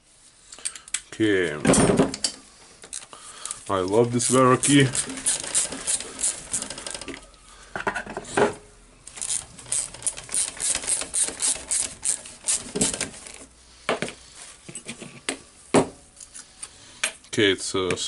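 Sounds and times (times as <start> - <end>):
hand ratchet clicking: 2.9 - 7.2, 9.1 - 13.4.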